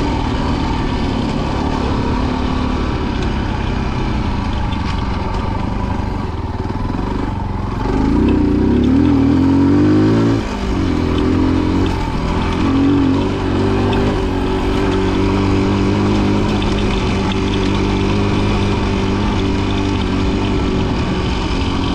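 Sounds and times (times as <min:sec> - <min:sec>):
motorcycle engine revving: 0:00.0 - 0:21.9.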